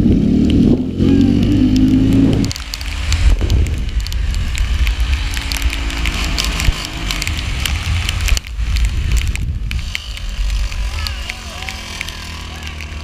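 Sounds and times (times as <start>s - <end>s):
wind buffeting microphone: 0.0s - 12.4s
rain and spray crackling on camera: 0.0s - 13.0s
faint small engine: 8.7s - 13.0s.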